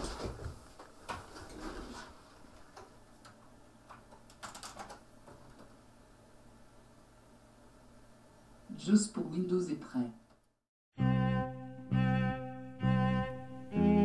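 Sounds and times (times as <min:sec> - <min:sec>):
keyboard keys clicking: 0:04.2 - 0:05.0.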